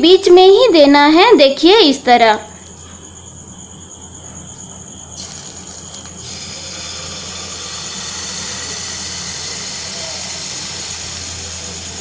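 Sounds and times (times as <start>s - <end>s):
batter sizzling in a pan: 5.2s - 12.0s.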